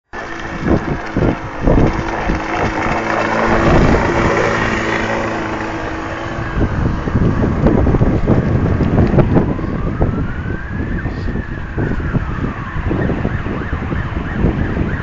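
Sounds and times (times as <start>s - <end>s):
two-stroke engine running flat out: 0.1s - 9.5s
wind buffeting microphone: 0.1s - 15.0s.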